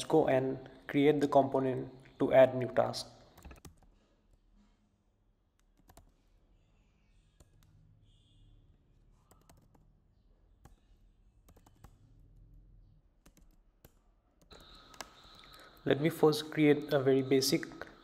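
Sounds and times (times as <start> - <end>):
computer keyboard keystrokes: 3.4 - 3.9, 5.6 - 6.1, 9.2 - 9.8, 11.5 - 12.0, 13.2 - 15.5.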